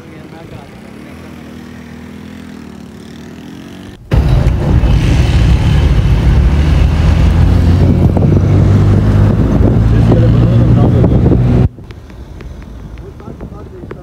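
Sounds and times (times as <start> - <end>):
car engine and road drone: 0.0 - 14.0.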